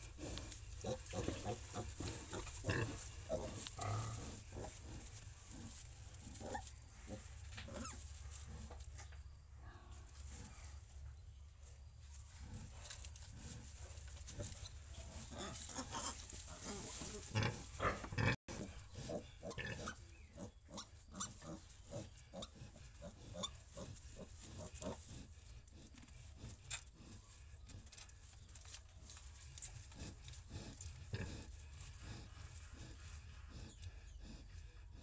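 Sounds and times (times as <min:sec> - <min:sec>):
pig grunting: 0:00.0 - 0:08.8, 0:14.3 - 0:27.2, 0:29.9 - 0:35.0.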